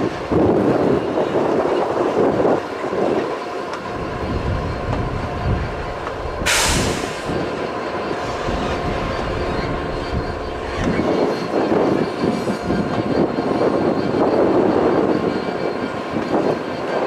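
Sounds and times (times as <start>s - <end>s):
locomotive engine rumbling: 0.0s - 17.0s
wind buffeting microphone: 0.0s - 17.0s
short hiss of air: 6.4s - 7.4s.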